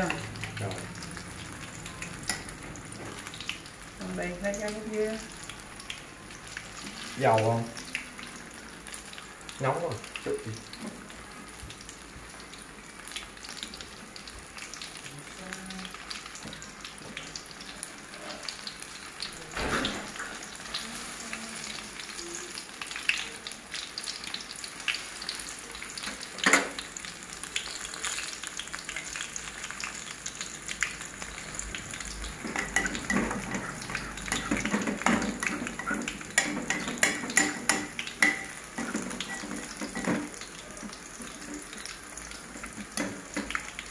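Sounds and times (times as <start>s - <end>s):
hot oil sizzling and crackling: 0.0s - 43.9s.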